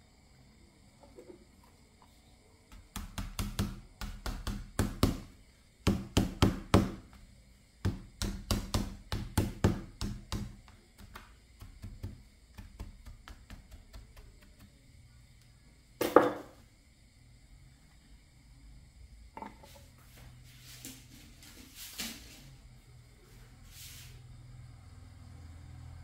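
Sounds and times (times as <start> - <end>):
hammer knocking on plastic: 2.7 - 5.3, 5.9 - 7.0, 7.8 - 14.2.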